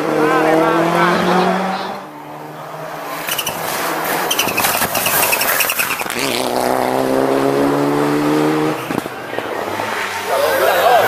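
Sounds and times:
engine accelerating: 0.0s - 11.0s
rally car passing: 0.0s - 11.0s
engine crackles and pops: 3.1s - 6.7s, 8.8s - 9.5s.

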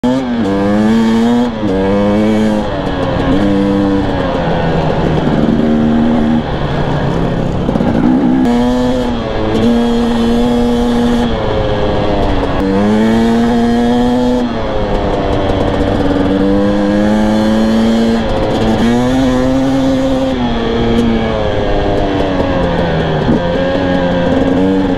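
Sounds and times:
dirt bike engine revving: 0.0s - 24.9s.

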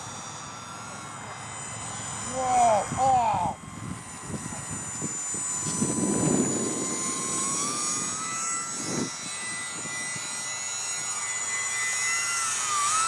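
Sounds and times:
electric model plane motors whining: 0.0s - 13.0s.

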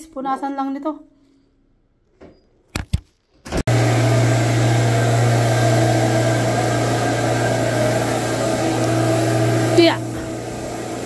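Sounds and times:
carpet extractor vacuum running: 3.7s - 11.0s.

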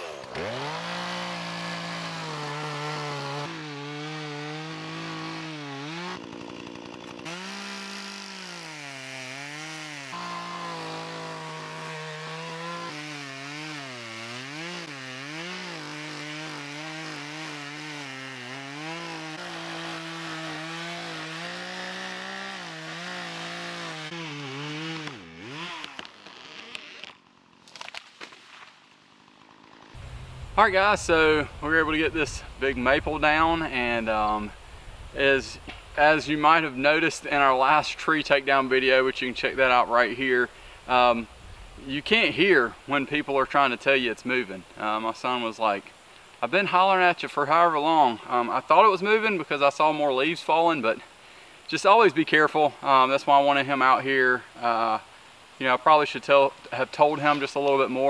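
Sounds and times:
chainsaw cutting wood: 0.0s - 28.4s, 29.0s - 30.2s, 35.6s - 36.6s.

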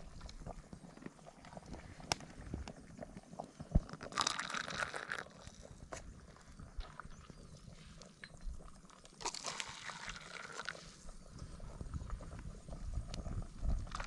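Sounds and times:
liquid pouring into paper cup: 3.9s - 5.7s, 9.2s - 10.8s.

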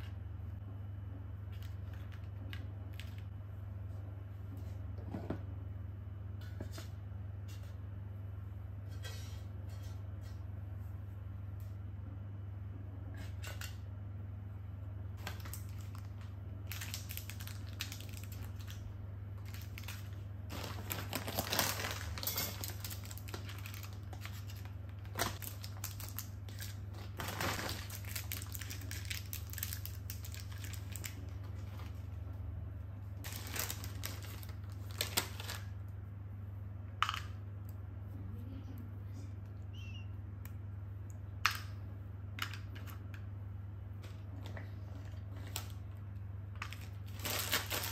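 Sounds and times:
steady low hum: 0.0s - 47.9s
plastic wrappers crinkling: 15.2s - 32.2s, 33.2s - 35.8s, 44.0s - 47.9s.

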